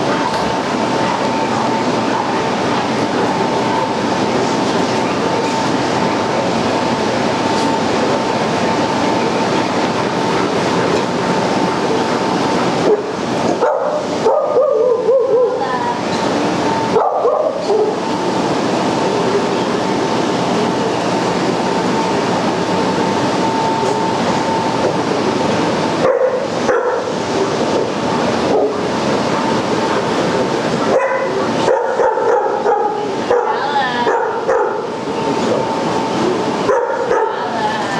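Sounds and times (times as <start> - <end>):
dogs barking and yipping: 12.9 - 15.6, 16.9 - 18.0, 26.0 - 27.2, 30.9 - 34.9, 36.6 - 37.5.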